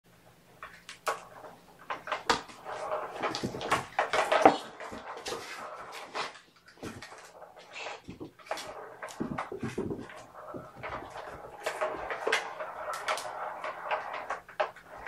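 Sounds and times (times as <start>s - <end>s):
kittens scrambling and scratching: 1.8s - 15.0s.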